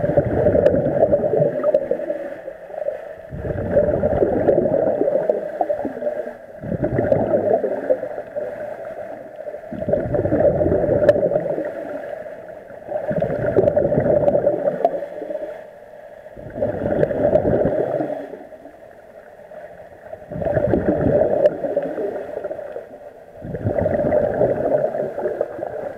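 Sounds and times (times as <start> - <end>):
diver exhaling bubbles underwater: 0.0 - 2.3, 3.3 - 8.5, 9.7 - 12.0, 12.9 - 15.3, 16.4 - 18.4, 20.3 - 22.6, 23.4 - 25.9.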